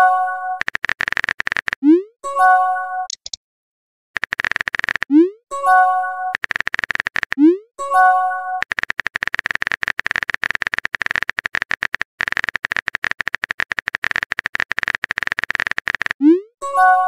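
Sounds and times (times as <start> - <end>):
phone keyboard tapping clicks: 0.6 - 1.8, 3.1 - 3.4, 4.2 - 5.1, 6.4 - 7.5, 8.6 - 16.2.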